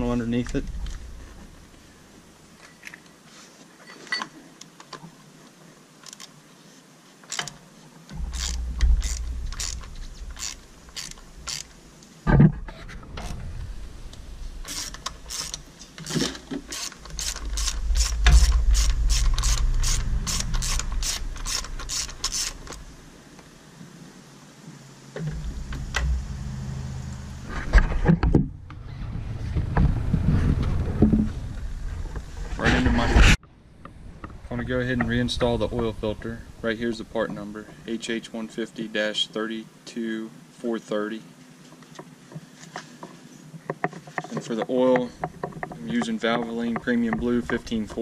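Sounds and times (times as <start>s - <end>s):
socket ratchet clicking: 8.3s - 11.7s, 14.6s - 15.6s, 16.7s - 22.8s.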